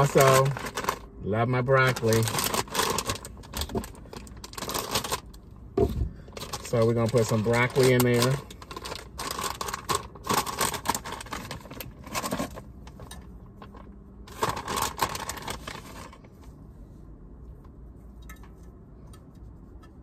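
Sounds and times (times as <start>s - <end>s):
plastic bag crinkling: 0.0s - 5.4s, 6.3s - 16.4s.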